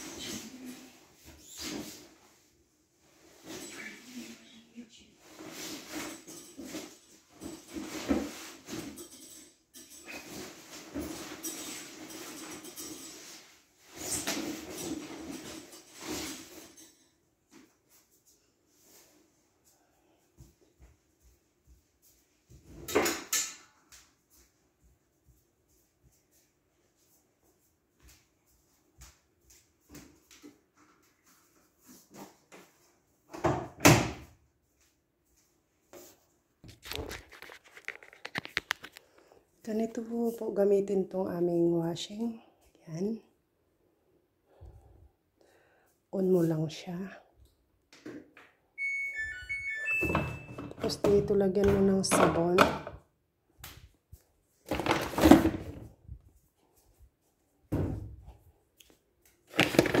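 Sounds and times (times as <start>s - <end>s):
laundry knocks and rustles: 54.6s - 56.2s, 59.5s - 60.0s.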